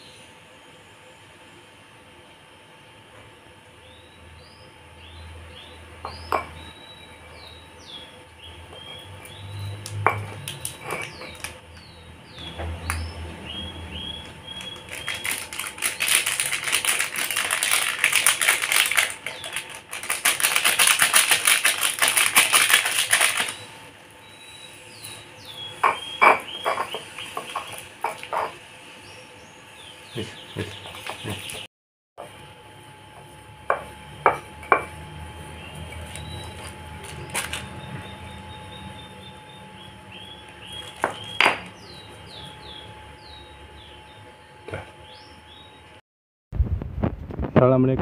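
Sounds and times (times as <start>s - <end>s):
small birds chirping: 3.8s - 20.4s, 22.6s - 31.7s, 35.5s - 46.0s
metal spoon scraping a mortar: 8.8s - 11.4s
utensil knocking against bowl: 25.8s - 28.6s.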